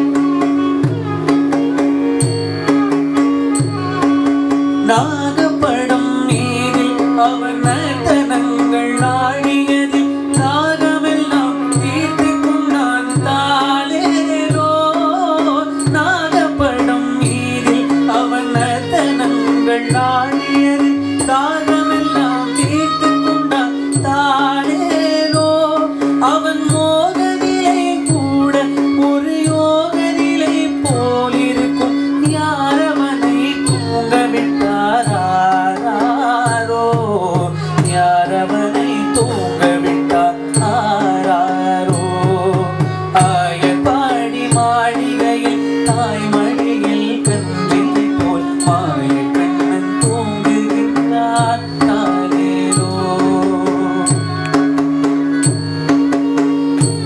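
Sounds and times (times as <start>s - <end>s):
hand drum strokes: 0.0s - 57.0s
violin: 0.0s - 57.0s
man singing: 4.6s - 57.0s.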